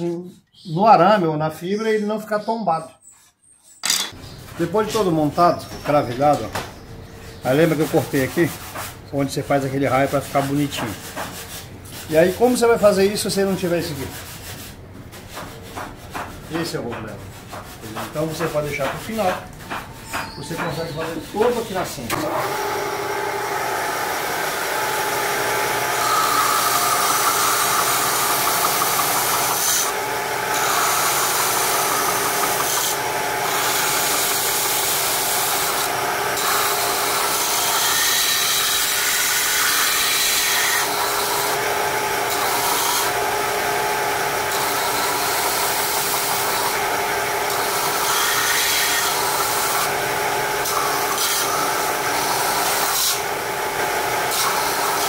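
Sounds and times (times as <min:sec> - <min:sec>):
wood rasping against sanding belt: 0:07.5 - 0:22.4, 0:25.5 - 0:43.2, 0:44.3 - 0:50.0
belt sander motor hum: 0:21.4 - 0:40.0, 0:40.6 - 0:55.0.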